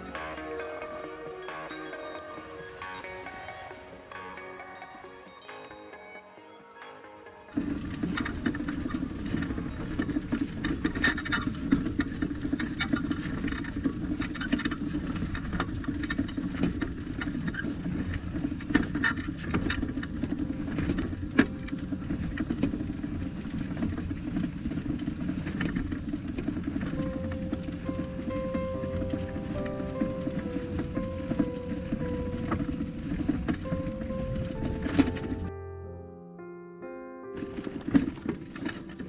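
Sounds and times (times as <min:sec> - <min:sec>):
vehicle engine and tyres rumbling: 0:00.0 - 0:04.2, 0:07.5 - 0:35.6, 0:37.4 - 0:39.0
rattles and knocks over bumps: 0:07.5 - 0:35.5, 0:37.4 - 0:39.0.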